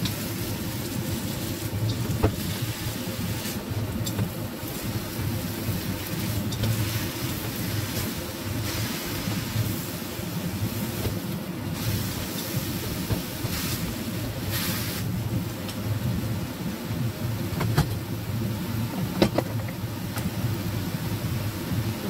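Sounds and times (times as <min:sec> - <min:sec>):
cabbage sizzling in a wok: 0:00.0 - 0:16.5
gas burner rumble: 0:00.0 - 0:22.0.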